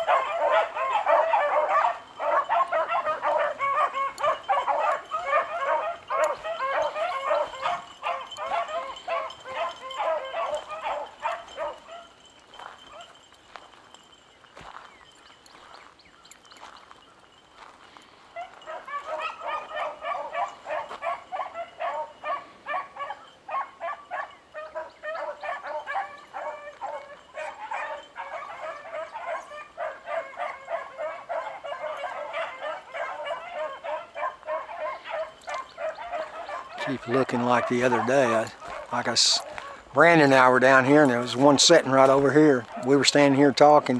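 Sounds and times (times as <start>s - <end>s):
pack of dogs barking: 0.0s - 15.7s, 16.6s - 43.9s.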